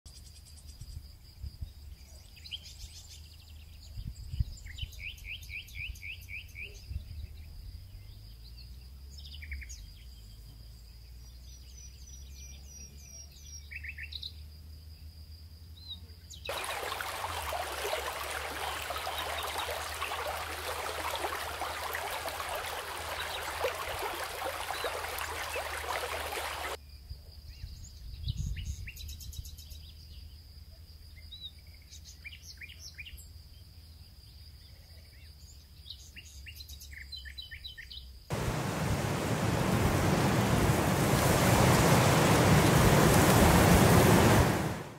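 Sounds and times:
small birds chirping: 16.3 - 26.8
loud even rushing noise: 38.3 - 44.9.

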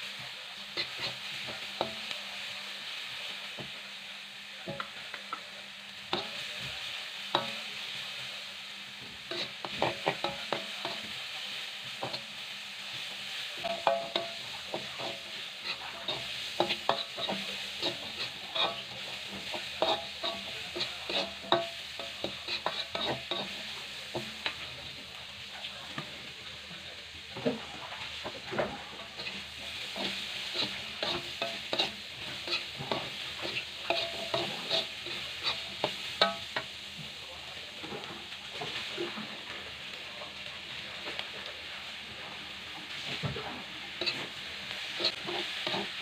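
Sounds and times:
oil sizzling in a wok: 0.0 - 46.0
metal spatula scraping a pan: 0.7 - 2.2, 9.2 - 24.6, 27.5 - 36.7, 42.3 - 46.0.

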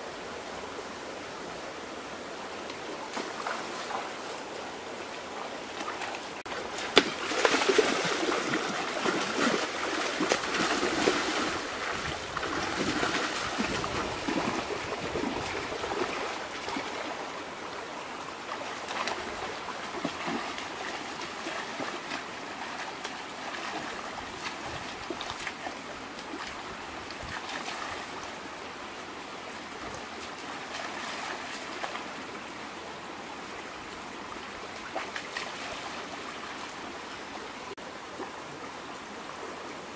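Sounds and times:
stream running: 0.0 - 39.9
splashing in water: 5.8 - 17.2, 18.5 - 26.6.

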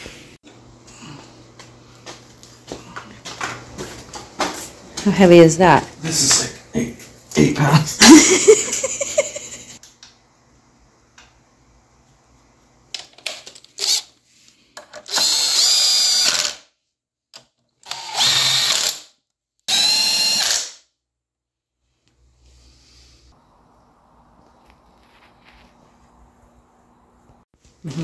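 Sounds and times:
drill bit clicks: 15.0 - 16.6, 17.8 - 19.0
cordless drill motor whine: 15.1 - 16.6, 17.8 - 19.1, 19.7 - 20.8.

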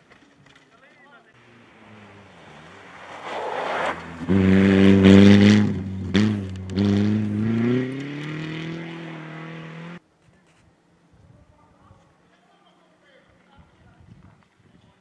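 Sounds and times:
rally car engine pulling hard: 1.4 - 10.0.

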